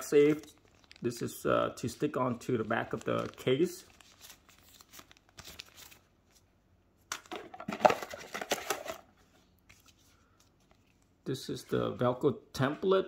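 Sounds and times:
plastic packaging crinkling: 0:00.0 - 0:06.5.

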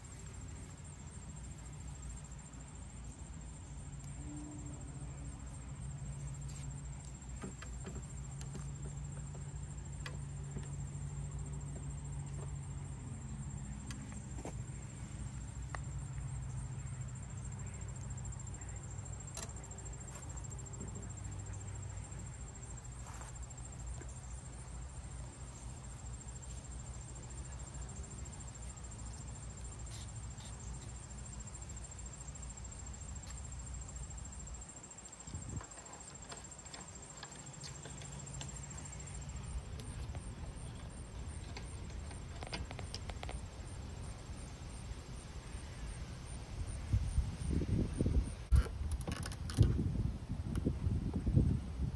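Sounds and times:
high-pitched insect buzz: 0:03.3 - 0:09.1.

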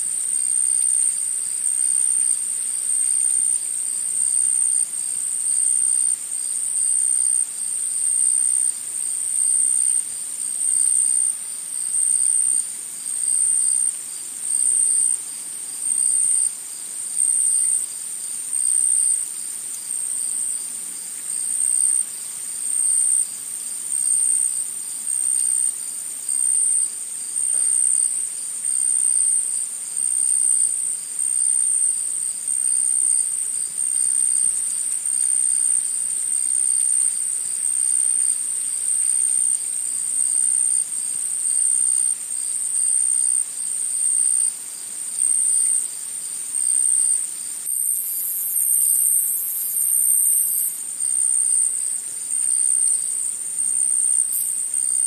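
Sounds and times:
faint background hiss: 0:00.0 - 0:55.0
insects trilling: 0:15.8 - 0:55.0.

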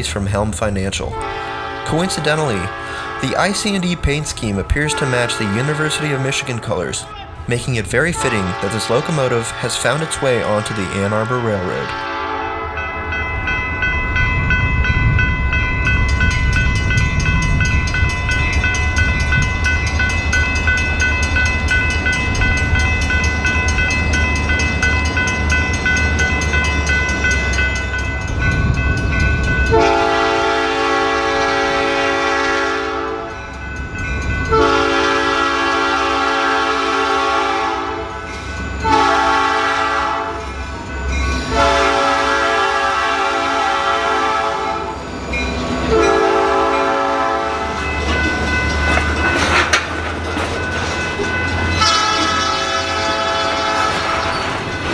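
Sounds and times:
crossing bell ringing: 0:00.0 - 0:54.9
diesel locomotive rumble: 0:00.0 - 0:54.9
locomotive air horn blasts: 0:01.1 - 0:06.6, 0:08.1 - 0:12.8, 0:29.7 - 0:33.4, 0:34.5 - 0:40.5, 0:41.4 - 0:45.0, 0:45.9 - 0:47.9, 0:51.8 - 0:54.3.

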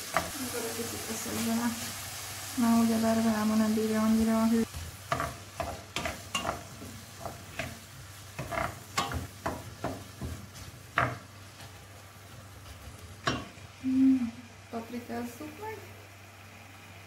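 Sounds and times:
vegetables sizzling in oil: 0:00.0 - 0:17.0
wooden spoon scraping pan: 0:04.7 - 0:11.8.

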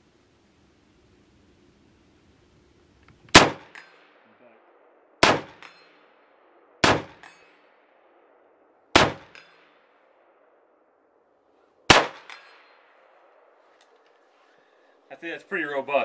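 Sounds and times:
fainter crack with a ring: 0:03.0 - 0:04.2, 0:07.2 - 0:07.6
rifle shots: 0:03.3 - 0:10.6, 0:11.8 - 0:13.6.

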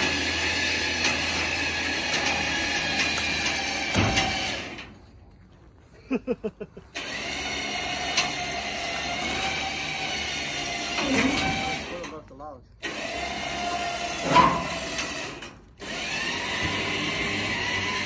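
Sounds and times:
small motor running: 0:07.0 - 0:12.1, 0:12.8 - 0:18.0
short squeaks: 0:10.9 - 0:12.2, 0:14.0 - 0:15.6.

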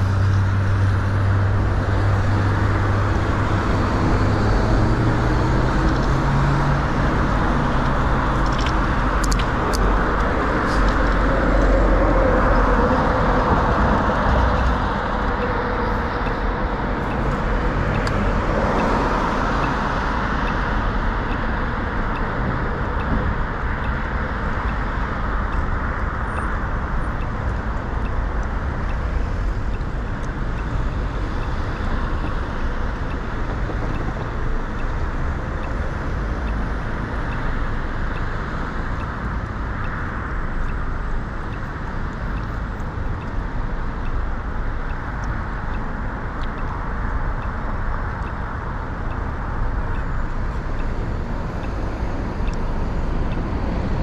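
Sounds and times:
cars passing at intersection: 0:00.0 - 0:54.0
wind rumble on microphone: 0:00.0 - 0:54.0.

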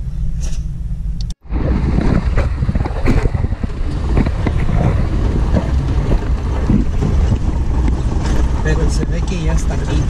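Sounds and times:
vehicle low rumble: 0:00.0 - 0:10.0
wind buffeting microphone: 0:01.4 - 0:10.0
knocks and rattles: 0:02.0 - 0:10.0.

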